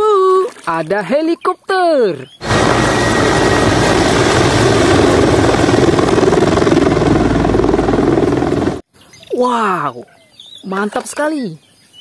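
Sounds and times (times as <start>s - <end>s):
helicopter flying low overhead: 2.4s - 8.8s.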